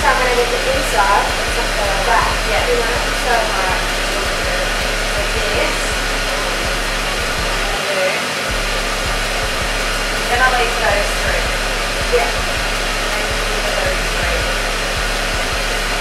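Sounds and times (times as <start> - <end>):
faint voices: 0.0 - 16.0
machine blowing air: 0.0 - 16.0.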